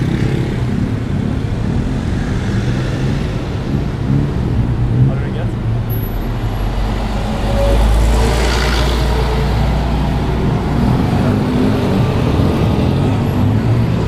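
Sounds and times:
traffic din: 0:00.0 - 0:14.0
bus engine rumble: 0:03.2 - 0:14.0.

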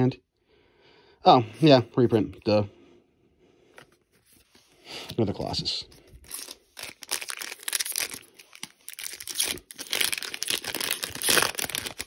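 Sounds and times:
trading cards rustling: 0:03.7 - 0:12.0
foil wrapper crinkling: 0:06.2 - 0:12.0.

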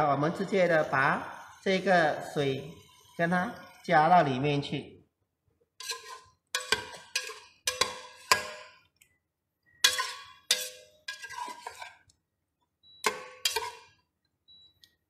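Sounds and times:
utensil clinking in metal pot: 0:05.8 - 0:09.0, 0:09.8 - 0:12.1, 0:13.0 - 0:14.0.

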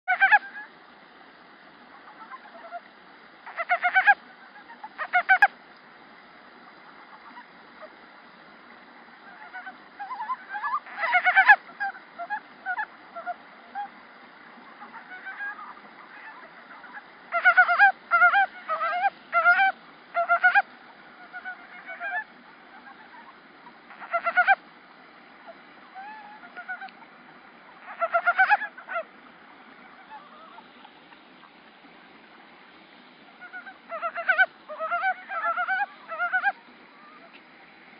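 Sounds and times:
frog calling in pulsed notes: 0:09.3 - 0:13.9, 0:14.8 - 0:20.6, 0:23.9 - 0:24.6.

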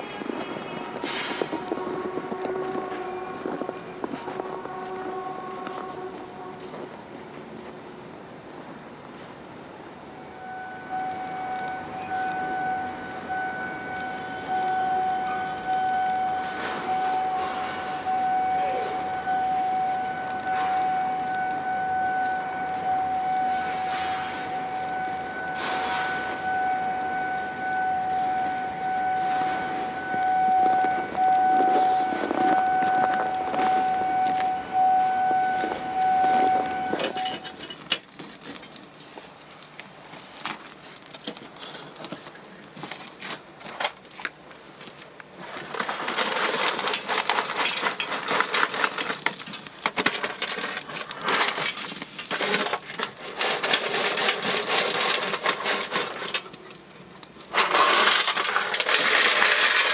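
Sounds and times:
steady siren tone: 0:00.0 - 0:07.7, 0:09.6 - 0:37.7
coal rattling into a stove: 0:35.8 - 0:44.4, 0:45.4 - 0:59.9
knocks and clatter: 0:45.6 - 0:59.9.

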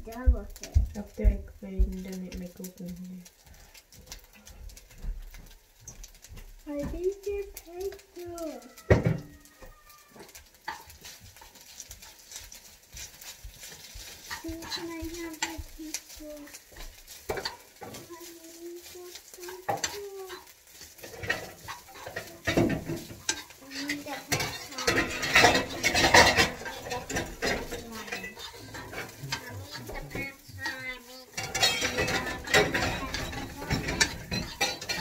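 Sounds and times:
light sizzle: 0:00.0 - 0:35.0
spatula scraping frying pan: 0:02.6 - 0:35.0
spatula clinking against pan: 0:10.2 - 0:18.1, 0:18.8 - 0:35.0.

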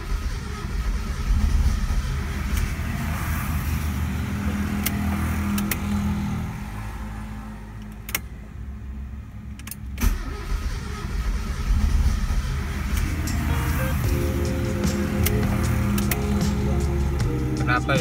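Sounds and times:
sharp clicks: 0:04.8 - 0:05.9, 0:07.8 - 0:08.3, 0:14.9 - 0:16.6
engine cranking with starter motor: 0:09.6 - 0:17.1.

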